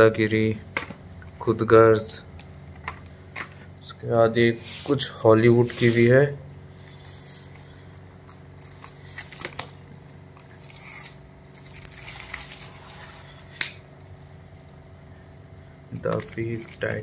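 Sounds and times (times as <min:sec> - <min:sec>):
faint steady hum: 0:00.0 - 0:17.0
plastic crinkling: 0:06.8 - 0:14.9, 0:15.9 - 0:17.0.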